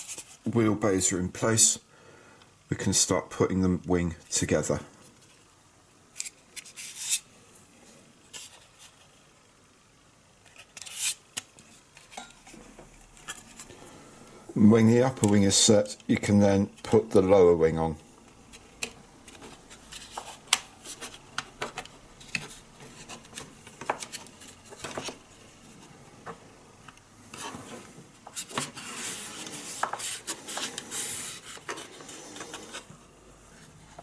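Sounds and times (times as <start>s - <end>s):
plastic parts clicking and tapping: 18.5s - 25.2s.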